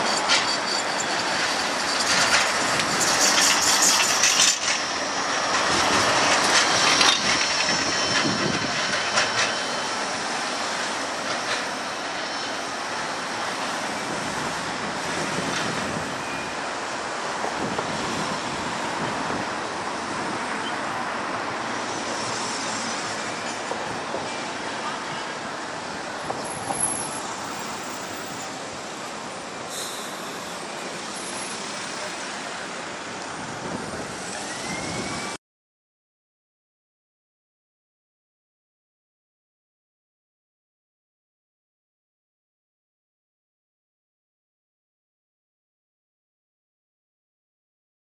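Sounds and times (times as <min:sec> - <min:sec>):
tram wheels rumbling on rails: 0:00.0 - 0:35.4
high-pitched hiss: 0:29.7 - 0:32.8.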